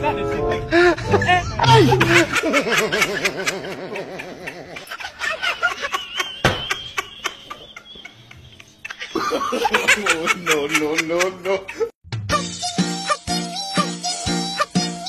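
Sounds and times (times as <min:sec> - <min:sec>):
person vocalizing wavering laughter: 0:00.8 - 0:06.3.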